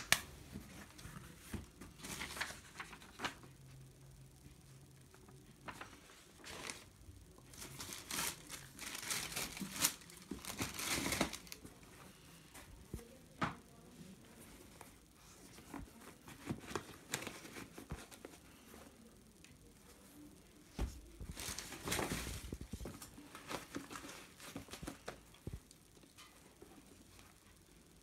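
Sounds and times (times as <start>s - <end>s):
tissue paper rustling: 0.0s - 3.5s, 5.7s - 11.8s, 21.0s - 25.2s.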